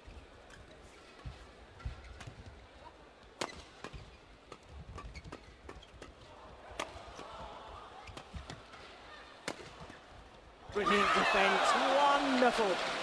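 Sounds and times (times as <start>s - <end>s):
rackets striking shuttlecock: 3.4s - 6.2s.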